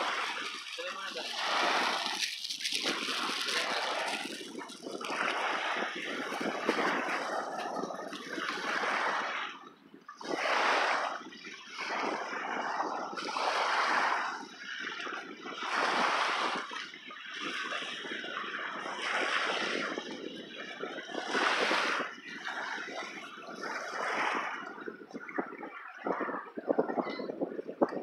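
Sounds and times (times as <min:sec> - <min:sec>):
lake waves washing onto gravel: 0:00.0 - 0:09.5, 0:15.4 - 0:24.7.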